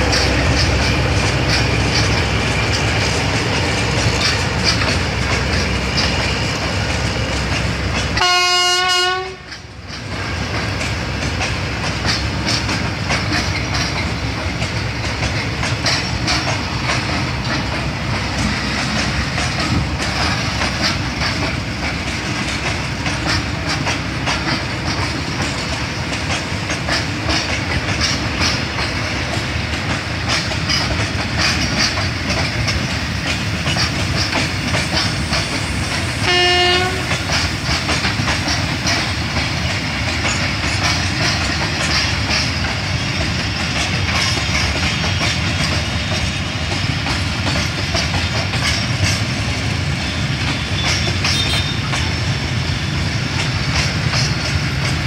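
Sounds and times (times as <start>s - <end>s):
freight train rumbling past: 0.0s - 55.0s
wheels clicking over rail joints: 0.0s - 55.0s
train horn blast: 8.2s - 9.5s, 36.2s - 37.3s, 50.6s - 51.8s.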